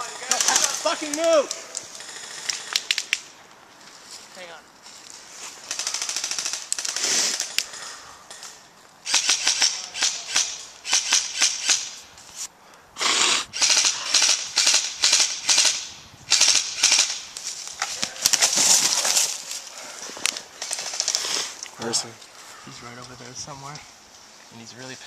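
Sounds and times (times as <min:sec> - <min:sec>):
footsteps in dry leaves and snow: 0:03.5 - 0:05.8, 0:17.4 - 0:21.6
airsoft rifle bursts: 0:09.0 - 0:12.0.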